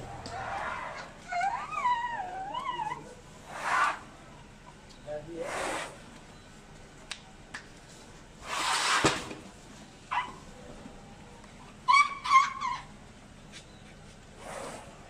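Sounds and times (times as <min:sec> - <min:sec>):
elephants squeaking: 0:00.0 - 0:04.5, 0:11.7 - 0:15.0
elephant blowing air: 0:08.4 - 0:09.2, 0:14.4 - 0:15.0.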